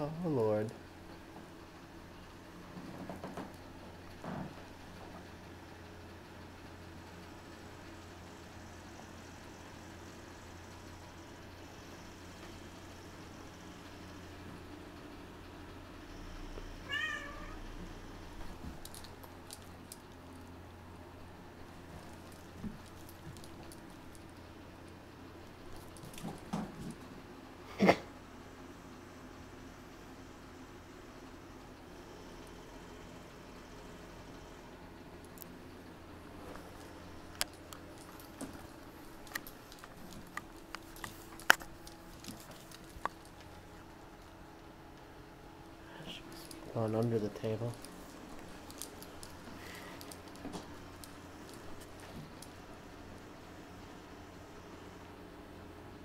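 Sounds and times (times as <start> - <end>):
faint steady hum: 0.0 - 56.0
cat meowing: 16.8 - 17.6.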